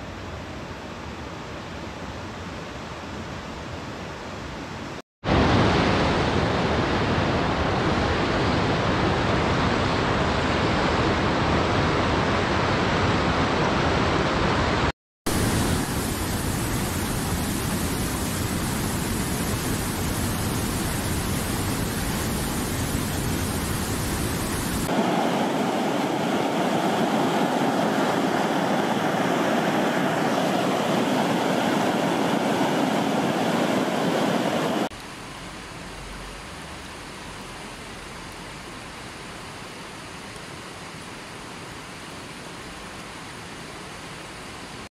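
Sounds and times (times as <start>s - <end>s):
water rushing over rocks: 14.4s - 44.8s
small waterfall splashing: 15.3s - 44.9s.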